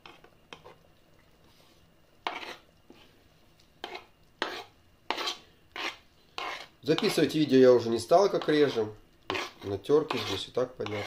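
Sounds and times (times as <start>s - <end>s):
utensil scraping wooden cutting board: 2.2s - 2.6s, 3.8s - 7.2s, 8.4s - 11.0s.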